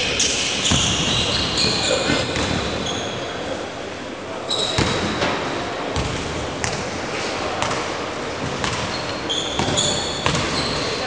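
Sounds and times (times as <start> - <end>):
sneaker squeaks: 0.2 - 3.3, 4.5 - 5.3, 8.5 - 11.0
basketballs bouncing on hardwood: 9.6 - 10.8.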